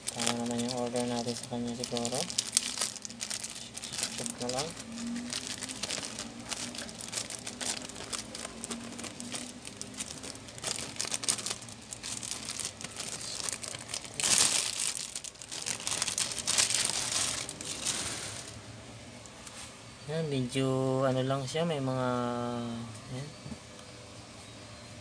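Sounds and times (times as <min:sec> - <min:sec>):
plastic wrapping crinkling: 0:00.0 - 0:18.6.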